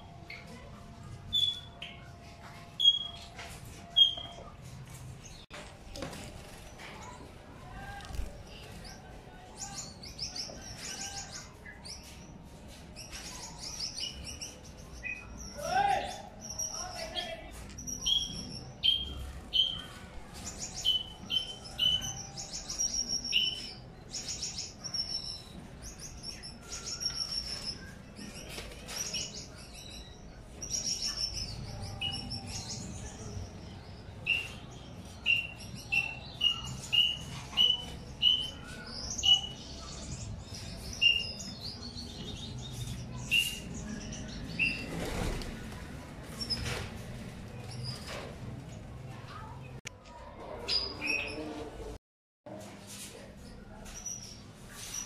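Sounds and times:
finches chirping and twittering: 1.3 - 4.6, 8.4 - 44.9.

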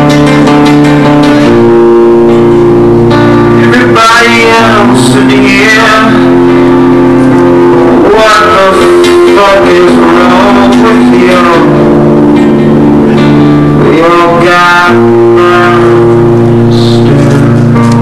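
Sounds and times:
acoustic guitar chords: 0.0 - 18.0
person singing a long note: 7.3 - 18.0.

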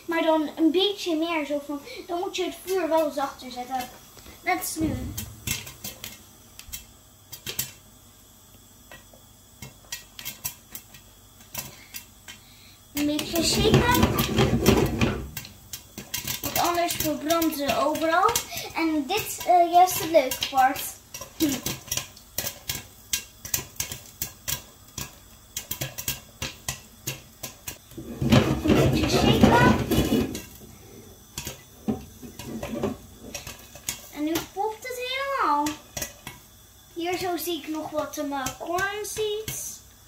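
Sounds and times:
popcorn popping in a pan: 0.0 - 40.0.

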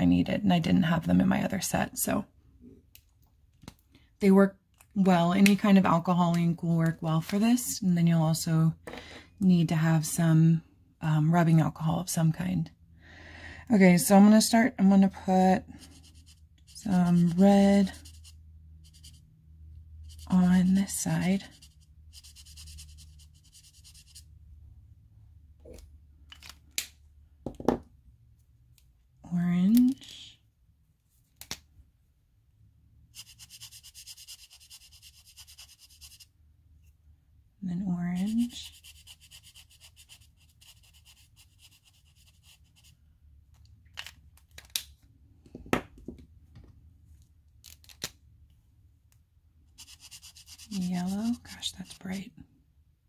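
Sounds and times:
marker scratching on nail tip: 15.8 - 19.3, 20.0 - 24.3, 33.1 - 36.3, 38.2 - 43.0, 49.8 - 52.3
marker tip scratchy ticks: 49.8 - 52.0.

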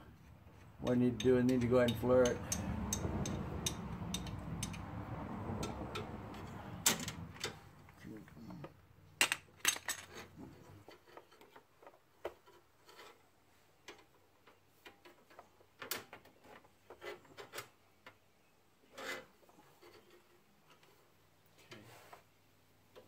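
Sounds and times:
tubing tapping and rubbing: 10.0 - 23.0.

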